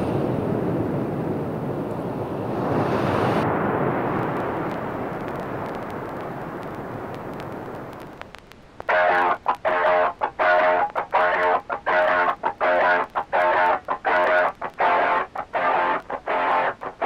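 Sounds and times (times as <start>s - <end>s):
steady rushing noise: 0.0s - 16.8s
guitar music: 8.9s - 17.0s.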